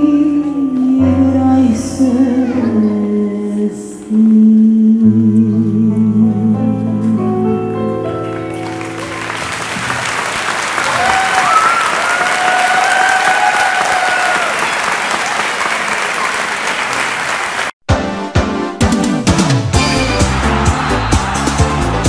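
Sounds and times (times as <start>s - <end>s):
audience clapping: 8.5s - 17.8s, 20.1s - 22.0s
person cheering: 10.8s - 15.4s.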